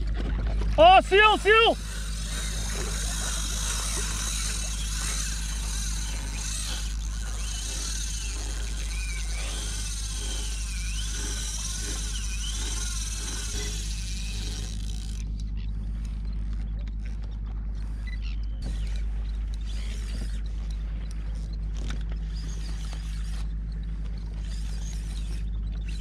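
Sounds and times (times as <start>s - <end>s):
water noise: 0.0s - 16.9s
fishing reel ticking: 0.9s - 16.6s, 17.8s - 26.0s.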